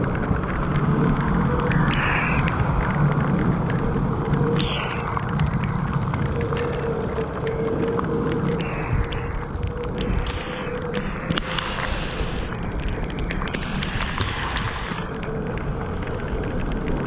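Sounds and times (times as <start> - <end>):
wind buffeting microphone: 0.0 - 17.0
tyres hissing through water: 8.6 - 15.2.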